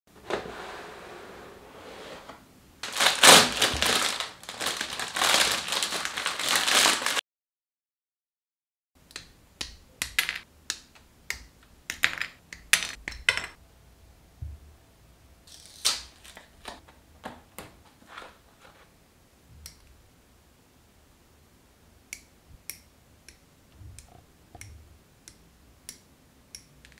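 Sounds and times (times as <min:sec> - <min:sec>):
box rustling and crinkling: 0:02.8 - 0:07.2, 0:16.1 - 0:18.9.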